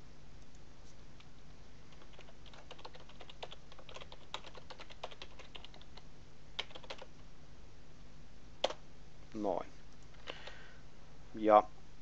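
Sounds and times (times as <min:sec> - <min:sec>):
keyboard typing: 0:01.9 - 0:06.0, 0:06.6 - 0:07.1.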